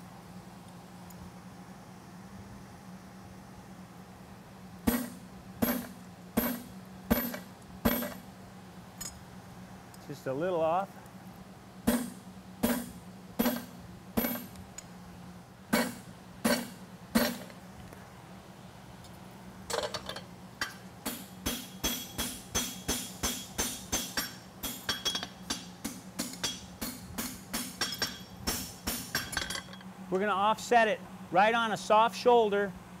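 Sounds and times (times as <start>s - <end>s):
hammer striking punch: 4.9s - 8.2s, 11.9s - 14.5s, 15.7s - 17.5s, 21.0s - 29.4s
ringing hammer blows on anvil: 21.1s - 29.8s.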